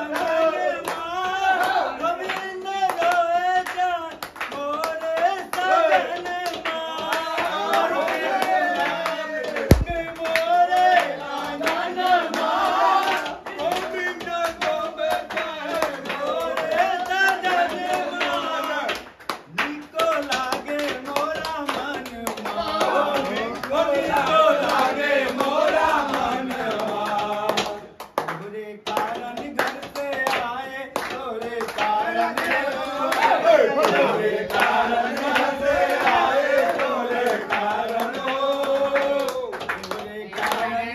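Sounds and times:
men singing together: 0:00.0 - 0:40.9
rhythmic hand clapping: 0:00.0 - 0:40.9
steel plate beaten as drum: 0:09.7 - 0:10.1
loud thump: 0:09.7 - 0:10.2.

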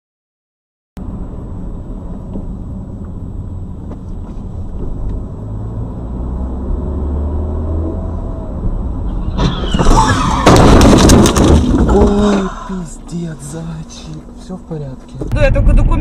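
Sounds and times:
car engine and road noise: 0:01.0 - 0:16.0
sudden loud noise: 0:09.1 - 0:12.5.

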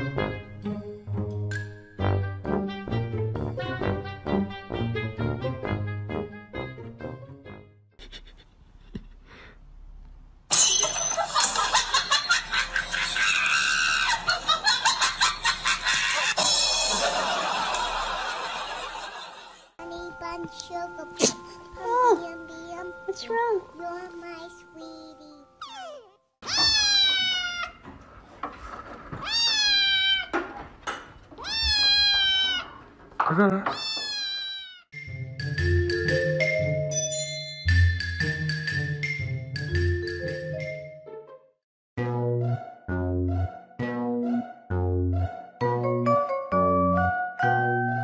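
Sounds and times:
person shrieking laughter: 0:13.2 - 0:14.3
kitten meowing: 0:25.6 - 0:27.8, 0:29.2 - 0:30.4, 0:31.4 - 0:32.8, 0:33.8 - 0:34.8.

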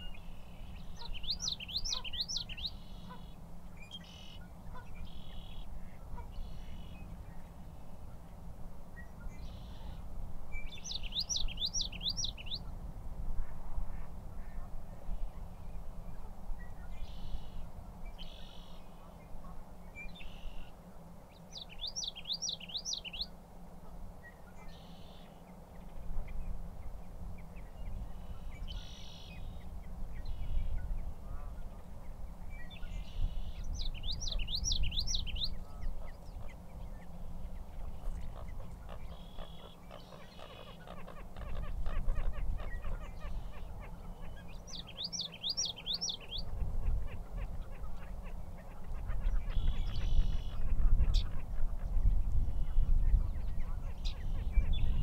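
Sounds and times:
bird singing rolling song: 0:00.0 - 0:12.8, 0:14.4 - 0:23.4, 0:24.2 - 0:55.0
short bird calls: 0:17.0 - 0:20.8, 0:28.2 - 0:31.7, 0:37.7 - 0:51.6.

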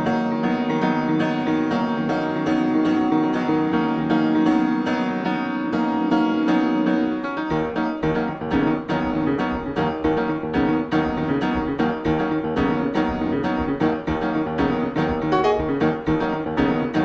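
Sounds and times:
piano music: 0:00.0 - 0:17.0
bass line: 0:07.5 - 0:17.0.

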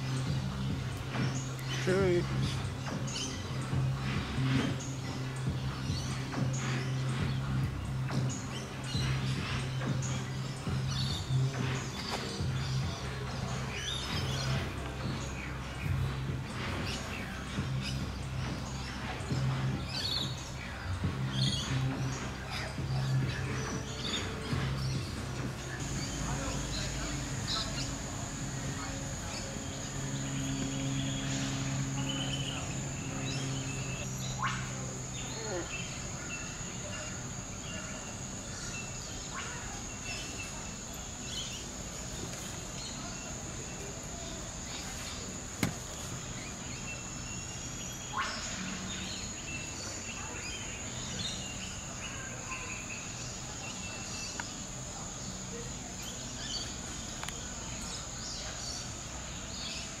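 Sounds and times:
bird chirps: 0:00.0 - 1:00.0
insects chirring: 0:25.7 - 1:00.0.

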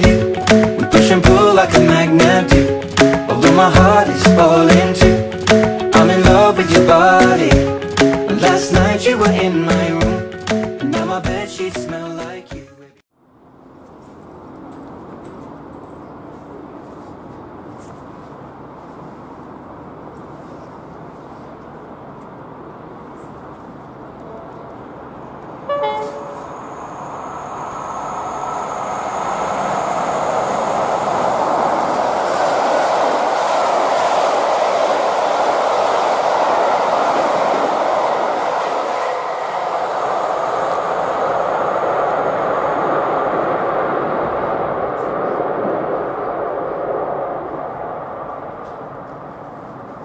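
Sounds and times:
train wheels rumbling on rails: 0:13.6 - 0:50.0
two-tone train horn: 0:25.7 - 0:26.5.

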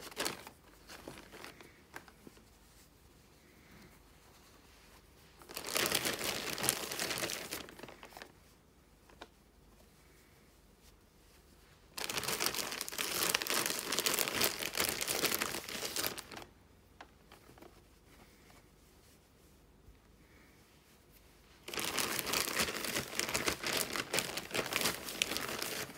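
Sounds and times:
plastic mailing bag crinkling: 0:00.0 - 0:02.2, 0:05.4 - 0:08.3, 0:11.9 - 0:16.5, 0:21.6 - 0:25.9.

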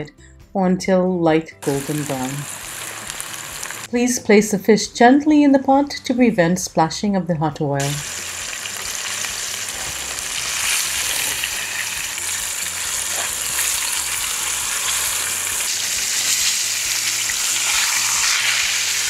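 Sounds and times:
fish frying in hot oil: 0:01.6 - 0:03.9, 0:07.8 - 0:19.0.

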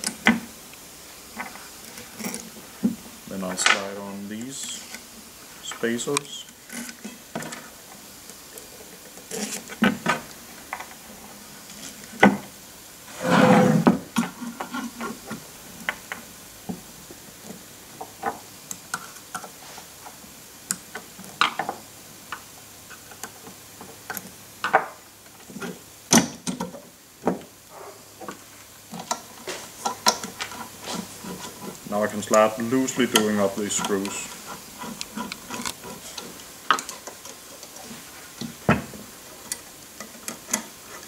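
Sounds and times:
scraping rustle: 0:01.2 - 0:16.3, 0:19.0 - 0:20.2, 0:27.7 - 0:41.0.

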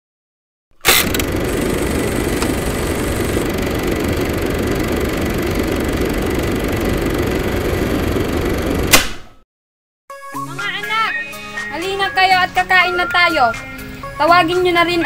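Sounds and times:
film projector whirring rattle: 0:00.8 - 0:09.0.

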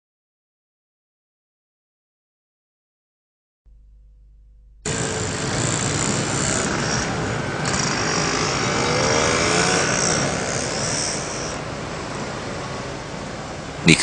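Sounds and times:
faint high whining tones: 0:03.7 - 0:14.0
traffic rumble and hiss: 0:04.8 - 0:14.0.

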